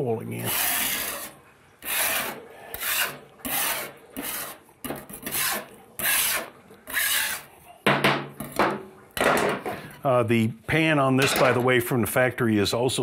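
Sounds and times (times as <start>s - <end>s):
metal scraper scraping sealant: 0.3s - 7.5s.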